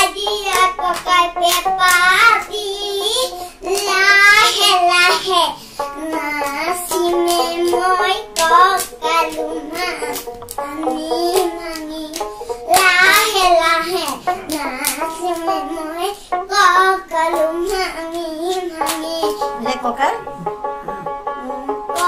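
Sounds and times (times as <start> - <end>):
girl singing: 0.0 - 19.8, 20.9 - 22.0
hands clapping: 0.4 - 2.2, 3.7 - 4.7, 6.4 - 10.7, 11.3 - 15.6, 18.1 - 19.2.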